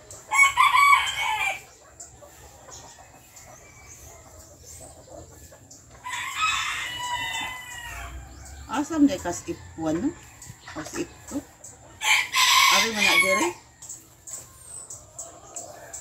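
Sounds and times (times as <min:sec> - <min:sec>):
rooster crowing: 0:00.3 - 0:01.6, 0:06.0 - 0:08.3, 0:12.0 - 0:13.6.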